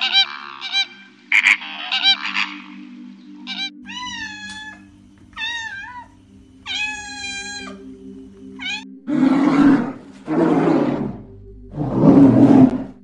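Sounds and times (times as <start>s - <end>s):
cat meowing: 3.5s - 7.8s, 8.6s - 8.9s
cat growling: 5.4s - 7.8s, 8.6s - 13.0s.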